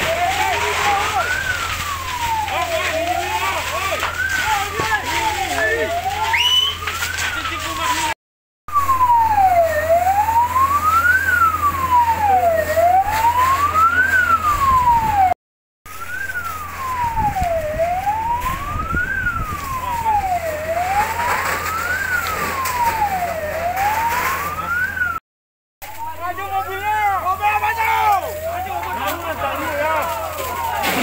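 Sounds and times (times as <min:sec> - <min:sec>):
emergency siren wailing: 0:00.0 - 0:25.2, 0:25.9 - 0:31.0.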